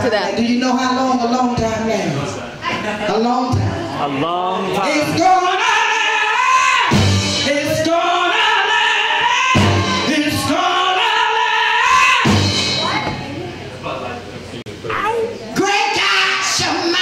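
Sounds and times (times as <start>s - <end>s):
live band playing: 6.8s - 13.5s.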